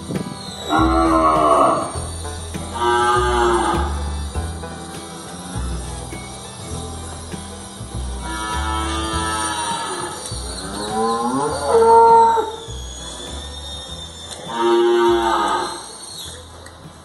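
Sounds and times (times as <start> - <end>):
cattle mooing: 0.7 - 2.0, 2.8 - 4.0, 8.2 - 12.6, 14.5 - 15.9.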